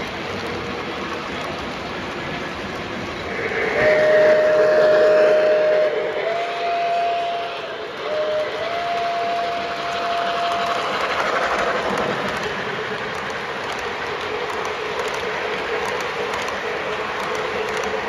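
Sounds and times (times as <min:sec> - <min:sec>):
electronic steam sound: 0:00.0 - 0:18.0
model train wheels rolling: 0:00.0 - 0:18.0
steam whistle: 0:03.3 - 0:11.1.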